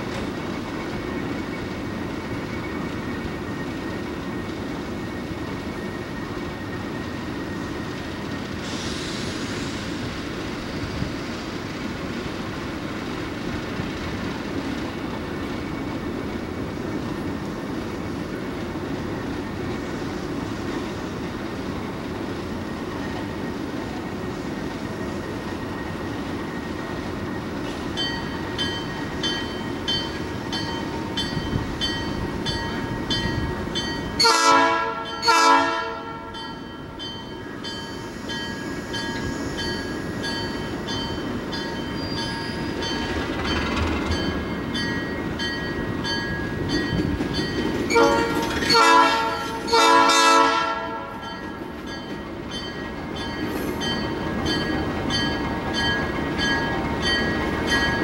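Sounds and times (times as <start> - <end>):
locomotive air horn blasts: 34.2 - 36.4, 47.9 - 51.2
locomotive engine running: 39.8 - 49.8.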